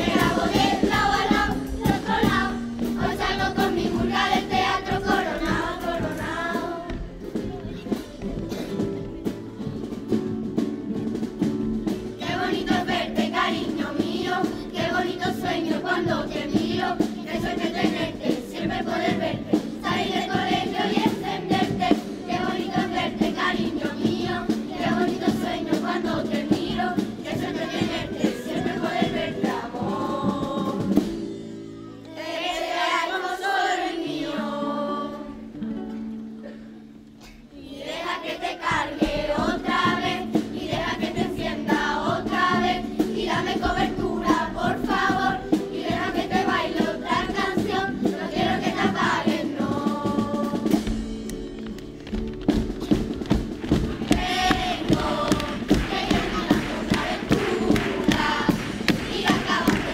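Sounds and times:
drum: 0.0s - 31.5s, 37.8s - 59.9s
children's choir singing: 0.0s - 35.7s, 37.3s - 51.2s, 52.8s - 59.9s
strummed acoustic guitars: 38.7s - 59.9s.

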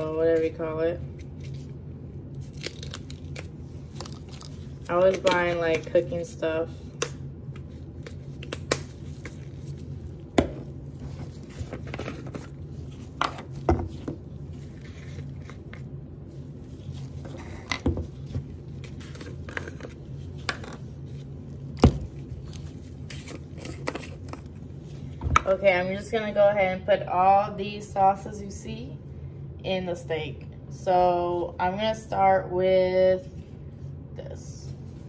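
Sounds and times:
low hum: 0.0s - 35.0s.

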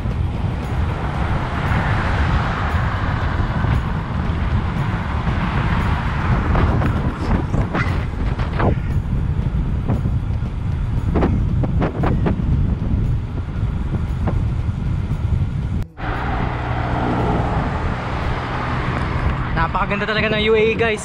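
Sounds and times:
low hum: 0.0s - 20.2s
wind buffeting microphone: 0.0s - 21.0s.

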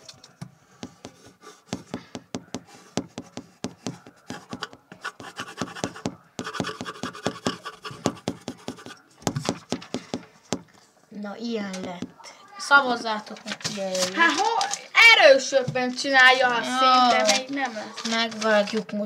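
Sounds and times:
pencil scratching on paper: 0.8s - 10.6s.

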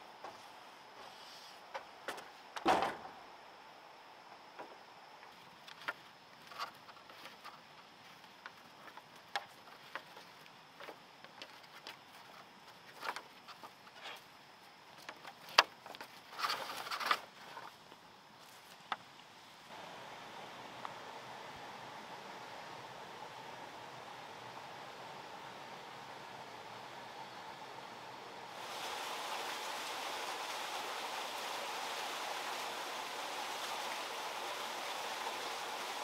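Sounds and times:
cord and grass rustling: 5.2s - 19.9s.

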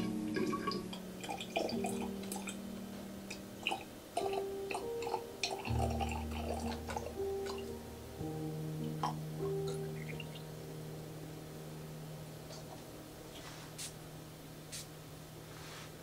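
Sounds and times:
water pouring into a glass bottle: 0.0s - 2.6s, 3.6s - 7.7s
soft background music: 0.0s - 16.0s.

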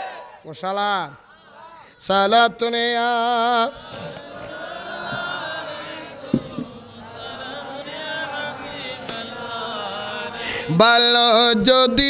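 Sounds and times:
men chanting together: 3.1s - 12.0s
short knock: 6.3s - 6.8s.

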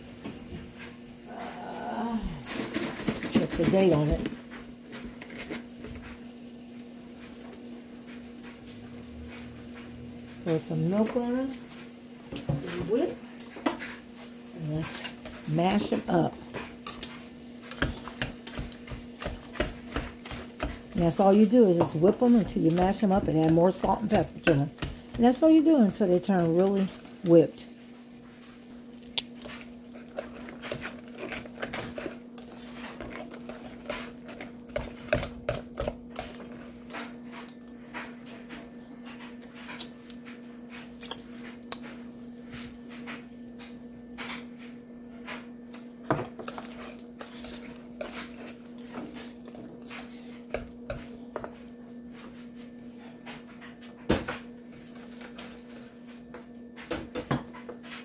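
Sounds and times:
whisk scraping and knocking a pot: 2.4s - 6.3s, 9.2s - 27.7s, 29.4s - 39.9s, 46.1s - 52.6s.

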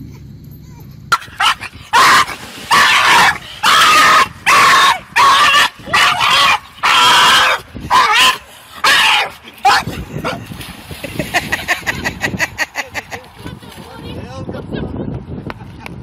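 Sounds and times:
dog yelping and whining: 0.6s - 10.4s.

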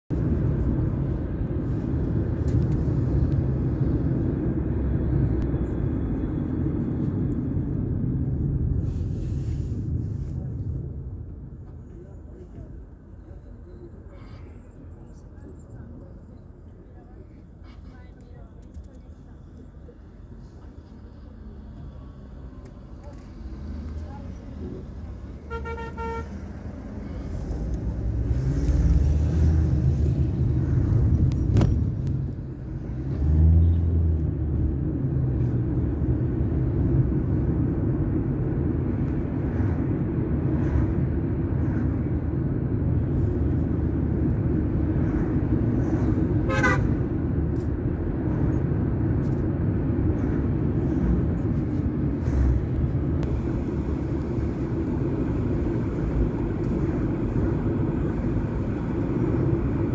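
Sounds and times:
car cabin road noise: 0.1s - 59.9s
car horn toot: 25.5s - 26.3s, 46.5s - 46.9s.

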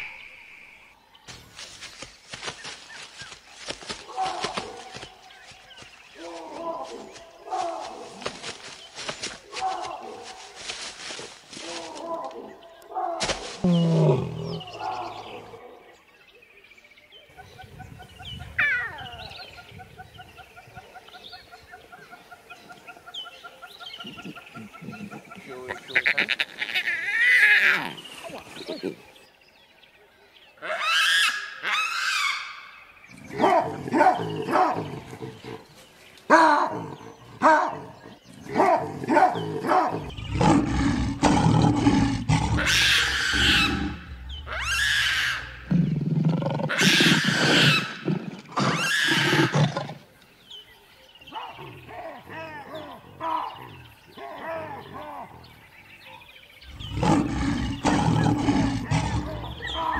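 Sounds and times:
lion growling and roaring: 13.6s - 15.6s, 36.3s - 50.0s, 56.6s - 59.9s.

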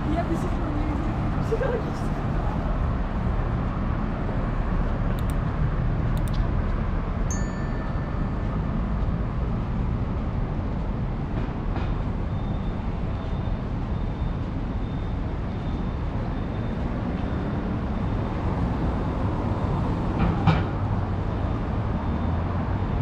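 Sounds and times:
city street traffic rumble: 0.0s - 23.0s
sharp clicks: 5.1s - 5.5s, 6.2s - 6.5s
short high ding: 7.3s - 8.6s.

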